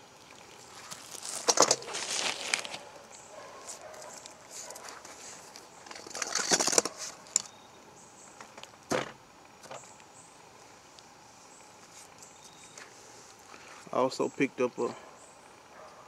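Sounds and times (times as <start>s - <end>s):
packaging crinkling and rustling: 0.7s - 3.0s, 3.6s - 7.5s.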